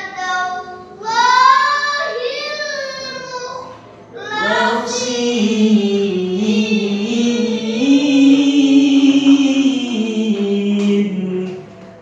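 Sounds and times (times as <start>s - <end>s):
person chanting melodically: 4.2s - 12.0s.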